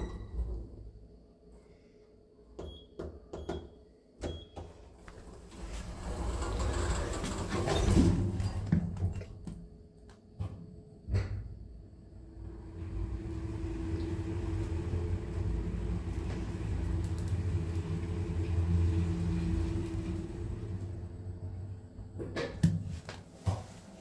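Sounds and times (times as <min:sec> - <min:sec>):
lift car rumble and hum: 0:00.0 - 0:01.1, 0:05.0 - 0:09.7, 0:11.1 - 0:22.6.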